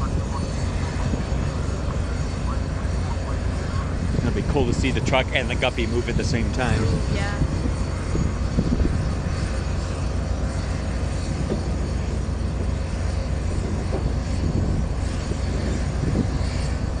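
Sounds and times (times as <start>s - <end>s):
engine drone with low rumble: 0.0s - 17.0s
faint high whine: 0.0s - 17.0s.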